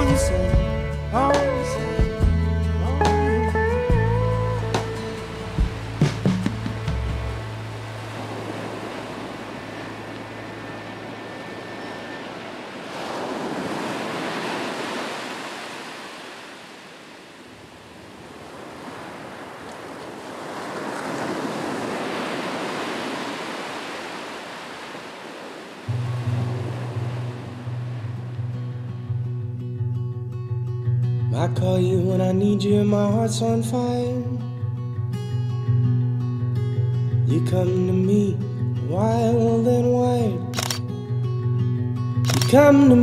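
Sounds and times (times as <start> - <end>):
music: 0.0 - 8.0, 27.0 - 43.0
ocean surf washing onto beach: 4.7 - 29.3.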